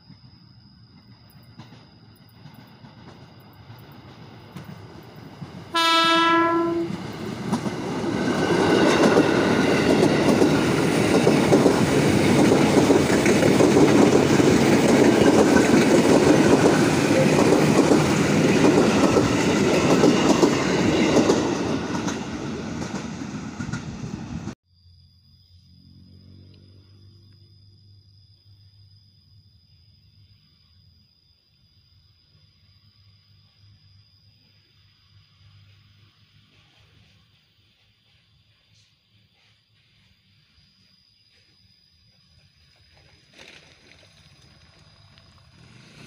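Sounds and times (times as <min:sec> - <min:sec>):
train wheels rumbling on rails: 0:00.9 - 0:24.6, 0:43.5 - 0:46.0
train horn blast: 0:05.7 - 0:07.1.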